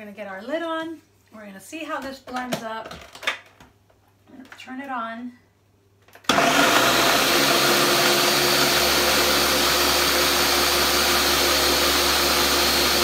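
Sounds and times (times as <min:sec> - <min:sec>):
blender whirring: 0:06.3 - 0:13.0.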